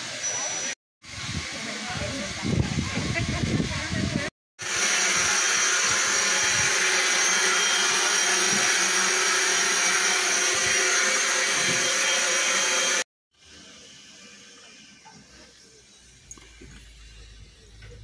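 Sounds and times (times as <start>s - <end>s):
loud steam hiss: 0.0s - 15.4s
thin high whistling tone: 0.1s - 0.8s.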